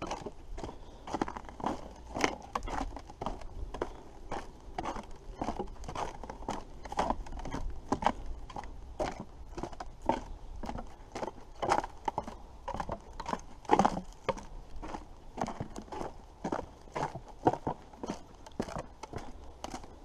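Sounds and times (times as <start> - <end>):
footsteps walking: 0.0 - 20.0.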